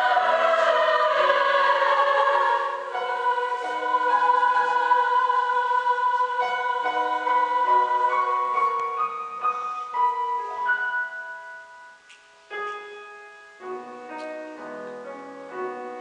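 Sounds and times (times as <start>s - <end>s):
girls' choir singing in harmony: 0.0s - 10.9s.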